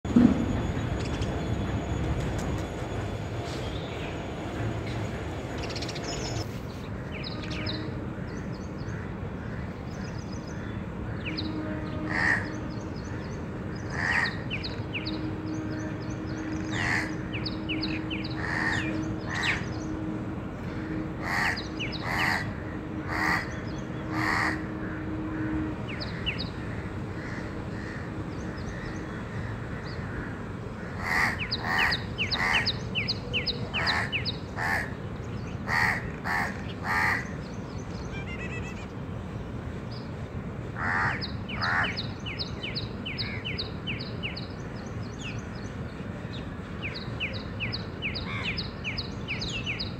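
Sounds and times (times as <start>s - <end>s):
crows cawing: 12.1s - 12.5s, 13.9s - 14.4s, 16.7s - 17.2s, 18.4s - 19.6s, 20.8s - 23.5s, 24.1s - 25.5s, 28.7s - 32.7s, 33.8s - 35.0s, 35.7s - 37.3s, 40.8s - 42.0s.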